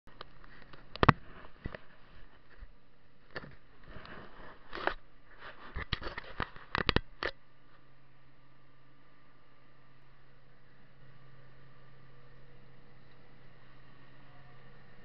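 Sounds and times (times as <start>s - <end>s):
tractor engine hum: 7.4s - 15.0s.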